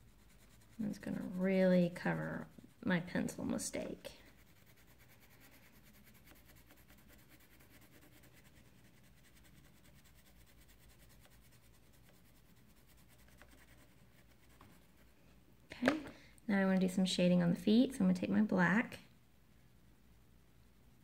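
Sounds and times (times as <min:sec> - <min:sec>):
crayon scratching on paper: 0:00.0 - 0:15.1.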